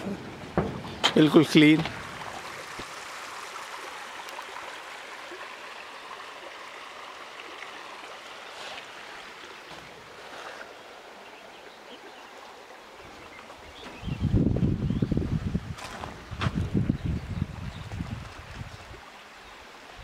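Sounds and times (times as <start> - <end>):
river water rushing over stones: 0.0 - 13.8.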